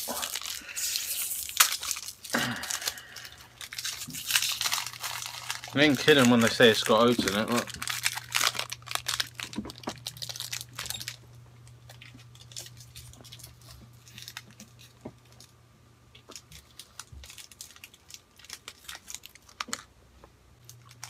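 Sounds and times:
plastic wrapper crinkling: 0:00.0 - 0:15.5, 0:16.1 - 0:19.9, 0:20.6 - 0:21.0.

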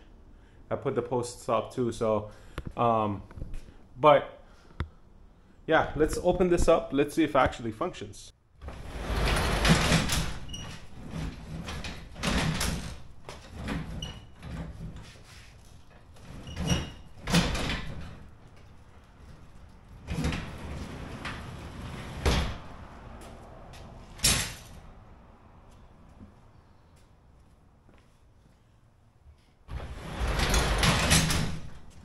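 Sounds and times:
garage door rumbling on tracks: 0:08.6 - 0:25.0, 0:29.7 - 0:32.0.

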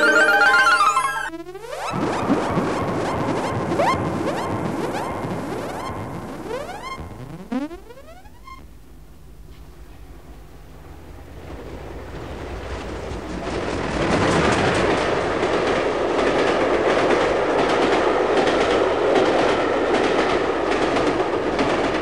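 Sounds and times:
train wheels clattering on rails: 0:11.4 - 0:22.0.

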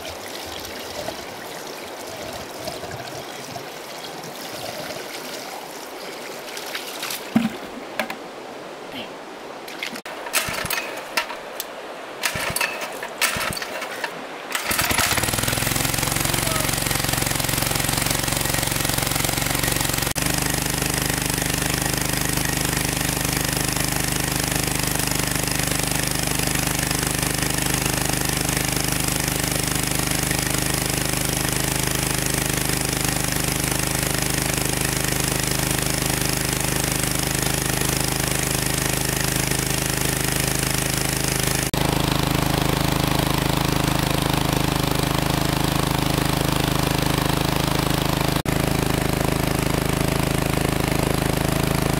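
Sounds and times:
engine chugging: 0:12.2 - 0:51.9.

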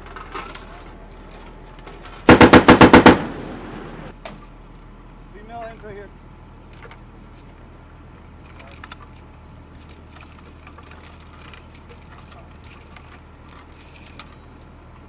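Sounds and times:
steady low hum: 0:01.0 - 0:15.0
cartridge belts clinking and rattling: 0:08.4 - 0:15.0.

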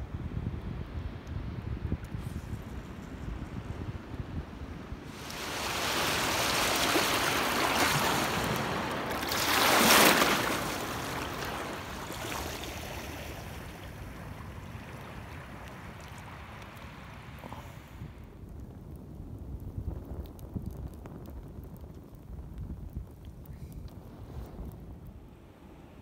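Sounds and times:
water rushing over shallows: 0:05.1 - 0:18.2.

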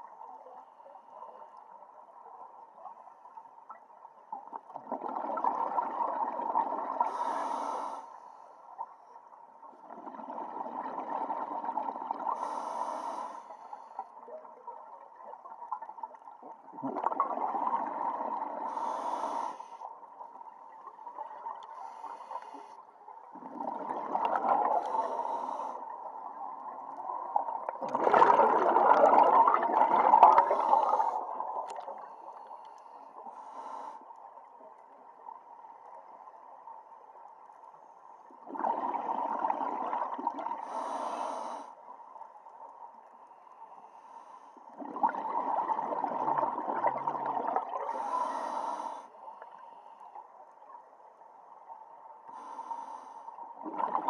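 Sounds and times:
diver breathing through regulator: 0:07.0 - 0:08.5, 0:12.3 - 0:14.0, 0:18.6 - 0:19.9, 0:24.6 - 0:25.9, 0:30.4 - 0:31.3, 0:32.0 - 0:34.2, 0:40.6 - 0:41.8, 0:47.8 - 0:50.1, 0:52.3 - 0:53.4
bubbling: 0:16.4 - 0:18.7, 0:23.3 - 0:25.4, 0:26.4 - 0:32.1, 0:38.4 - 0:40.7, 0:44.7 - 0:48.1, 0:53.6 - 0:54.0.

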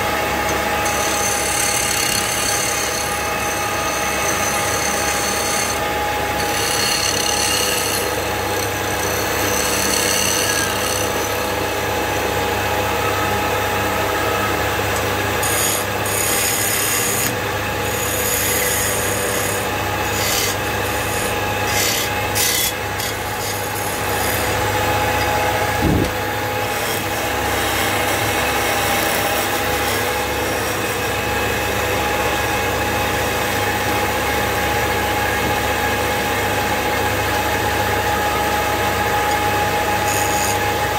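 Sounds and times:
chisel cutting spinning wood: 0:00.0 - 0:40.9
wood lathe humming: 0:00.0 - 0:40.9.

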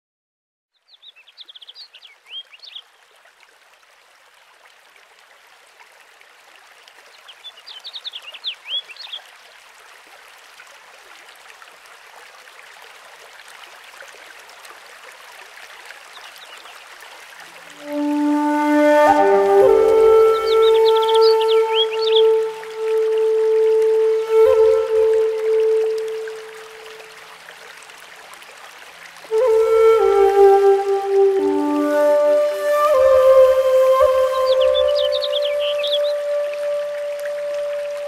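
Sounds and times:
stream running: 0:00.7 - 0:38.0
music with held notes: 0:17.8 - 0:26.9, 0:29.3 - 0:38.0
birds chirping: 0:20.0 - 0:22.9, 0:33.3 - 0:36.4.

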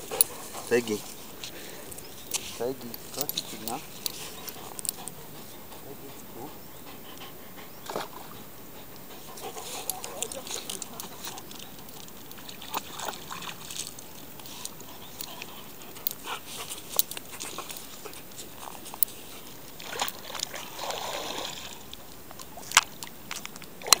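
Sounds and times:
dog gnawing a stick: 0:00.0 - 0:20.6, 0:21.9 - 0:24.0
dog splashing in water: 0:09.4 - 0:14.4, 0:19.7 - 0:21.9.

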